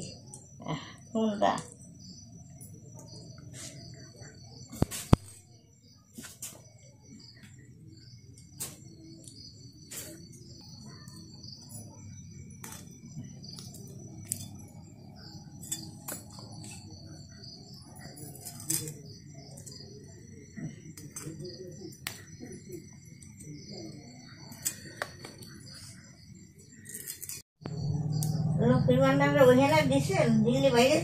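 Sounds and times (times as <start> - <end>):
low hum: 27.6 - 29.9.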